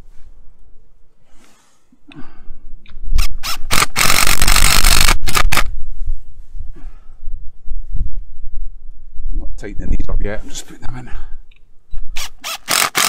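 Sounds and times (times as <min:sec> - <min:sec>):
impact driver driving screws: 0:03.2 - 0:05.7, 0:12.2 - 0:13.0.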